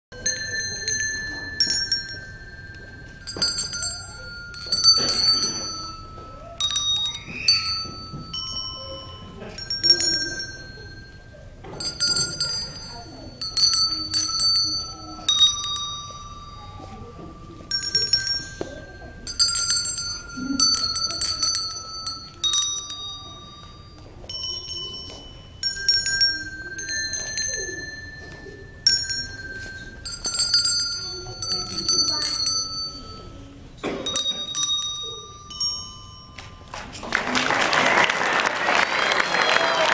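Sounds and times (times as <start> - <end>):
handbells playing slow tune: 0.2 - 39.9
applause: 37.0 - 39.9.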